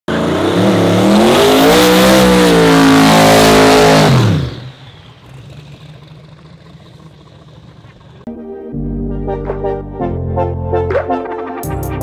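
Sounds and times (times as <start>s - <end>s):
engine revving hard: 0.1s - 6.3s.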